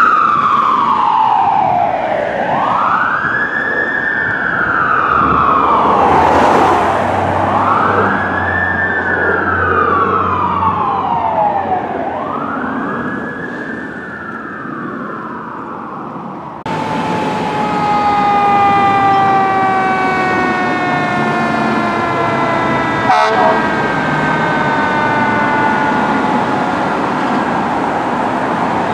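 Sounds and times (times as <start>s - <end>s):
long siren tone sinking in pitch: 0.0s - 28.9s
wailing fire engine siren: 0.0s - 28.9s
low engine rumble: 4.8s - 12.6s.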